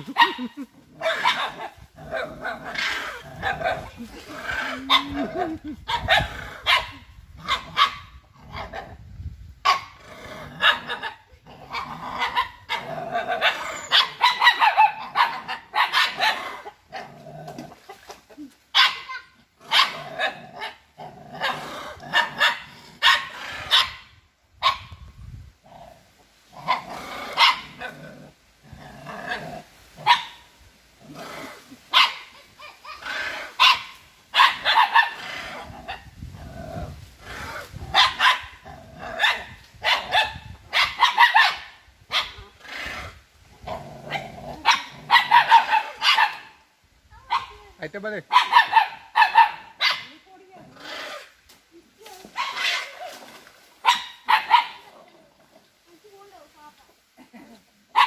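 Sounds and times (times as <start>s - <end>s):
dogs barking: 0.0s - 2.3s, 4.8s - 8.1s, 10.6s - 16.8s, 18.8s - 20.8s, 21.4s - 24.0s, 26.7s - 27.8s, 30.0s - 30.4s, 31.9s - 35.2s, 37.9s - 38.6s, 39.2s - 42.4s, 44.1s - 46.6s, 48.3s - 50.2s, 53.8s - 54.9s.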